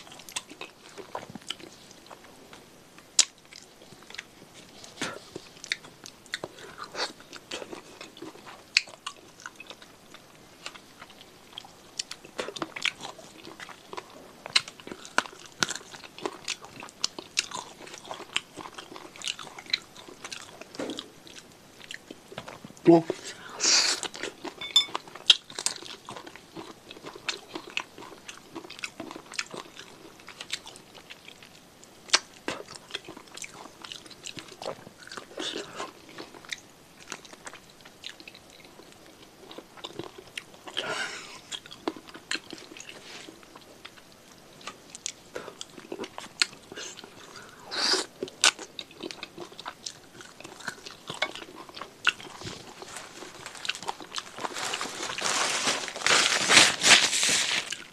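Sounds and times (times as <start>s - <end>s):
close chewing and crunching: 0.0s - 57.9s.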